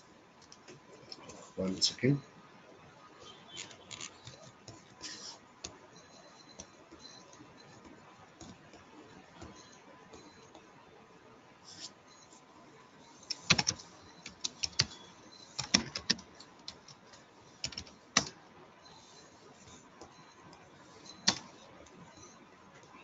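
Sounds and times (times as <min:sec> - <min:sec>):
keyboard typing: 0:03.2 - 0:10.8, 0:13.0 - 0:23.0.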